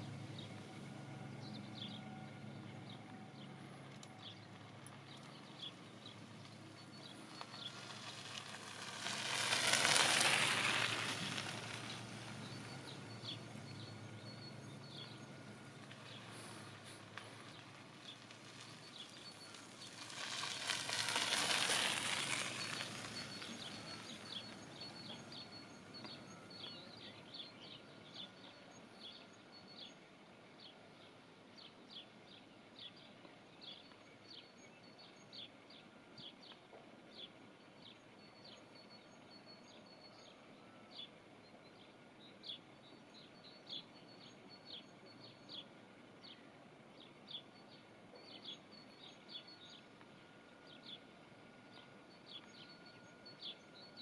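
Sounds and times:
broad rushing noise: 0:07.6 - 0:13.0.

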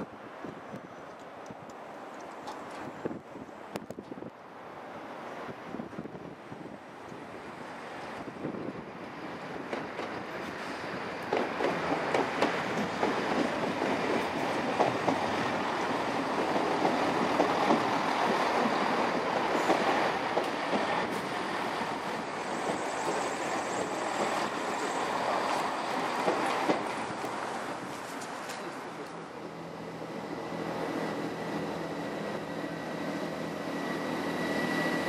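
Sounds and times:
diesel train passing: 0:00.0 - 0:35.0
wheels clicking over rail joints: 0:11.2 - 0:21.3, 0:22.6 - 0:29.6
faint high wheel squeal: 0:30.9 - 0:35.0.

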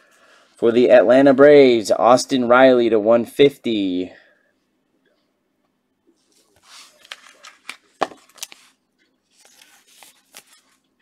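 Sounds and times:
plastic wrapper crinkling: 0:06.3 - 0:11.0.

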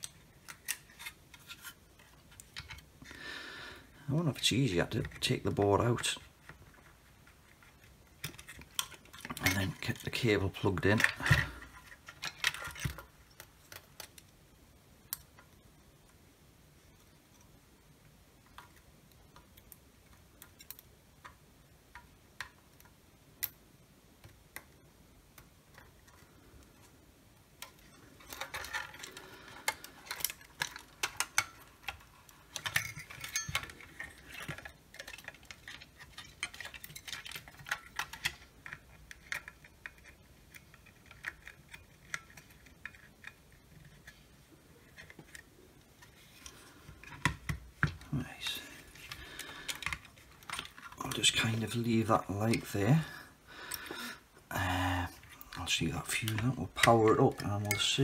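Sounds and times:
plastic case clicks and clatter: 0:27.6 - 0:44.1.

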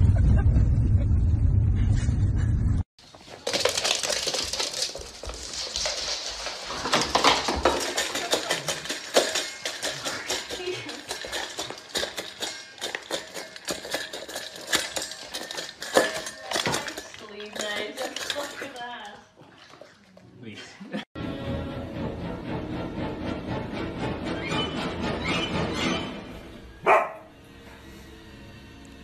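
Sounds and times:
dog eating from metal bowl: 0:03.2 - 0:20.3.

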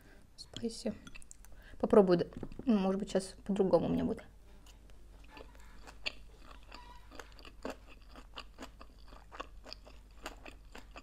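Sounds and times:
chewing clicks and crunches: 0:05.2 - 0:11.0.

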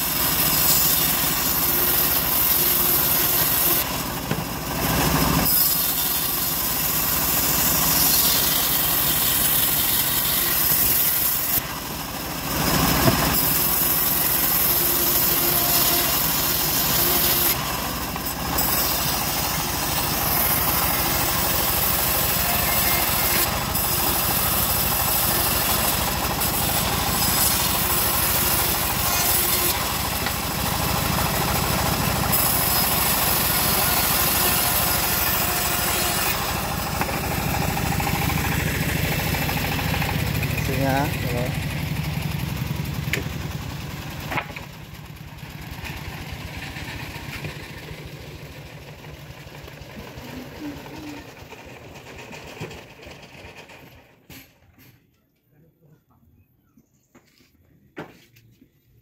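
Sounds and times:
band saw blade cutting wood: 0:00.0 - 0:44.7
stationary engine running: 0:00.0 - 0:53.8.

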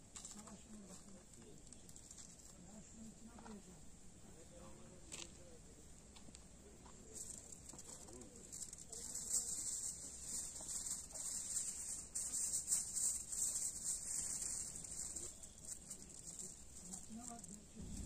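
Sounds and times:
aluminium foil crinkling: 0:00.1 - 0:03.0, 0:07.1 - 0:18.0.

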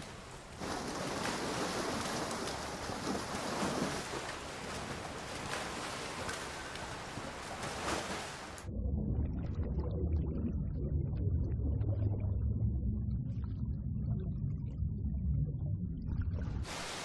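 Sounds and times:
people wading through water: 0:00.0 - 0:08.7.

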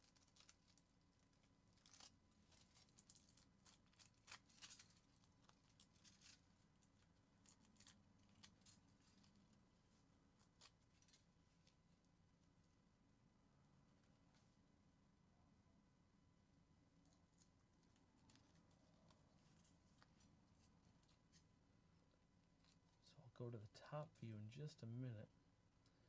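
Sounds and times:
aluminium foil crinkling and tearing: 0:00.0 - 0:11.8, 0:17.1 - 0:21.4.

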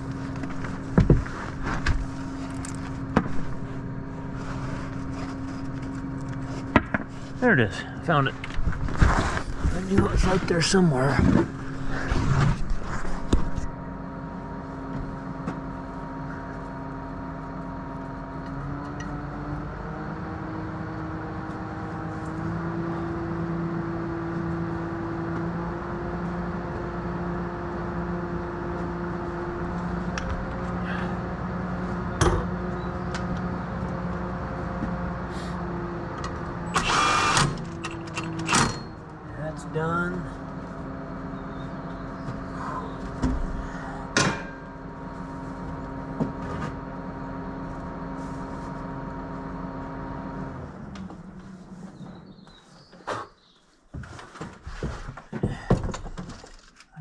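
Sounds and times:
rustling and clatter: 0:00.0 - 0:07.4, 0:08.4 - 0:13.7, 0:53.8 - 0:57.0
engine running: 0:00.0 - 0:53.3.

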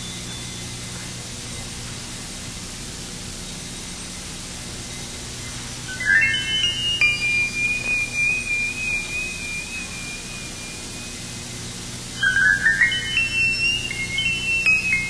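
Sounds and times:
high flute-like melody: 0:05.9 - 0:15.0.

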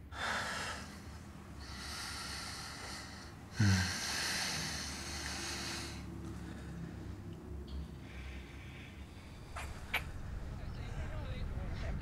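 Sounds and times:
heavy breathing: 0:00.0 - 0:10.5.

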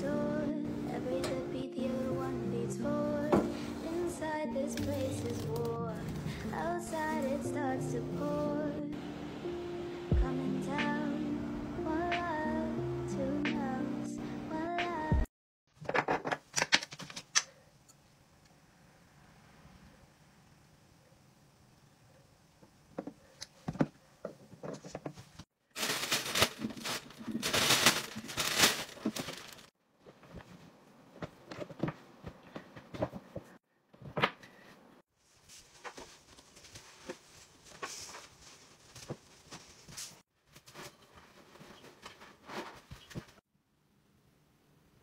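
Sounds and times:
dense rustling: 0:25.8 - 0:29.7.

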